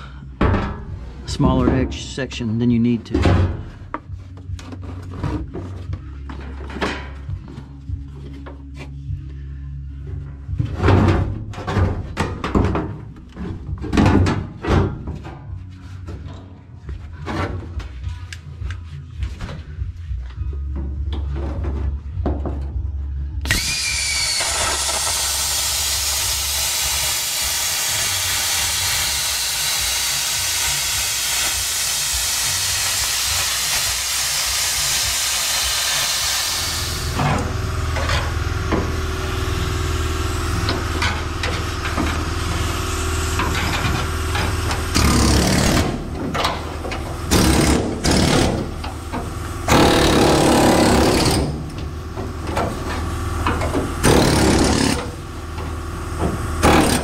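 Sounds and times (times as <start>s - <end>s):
pneumatic tool cutting sheet metal: 23.4s - 57.0s.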